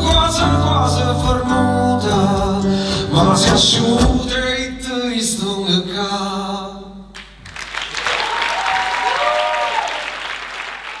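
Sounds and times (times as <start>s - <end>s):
man singing with guitar: 0.0s - 6.7s
audience applauding and cheering: 7.2s - 11.0s.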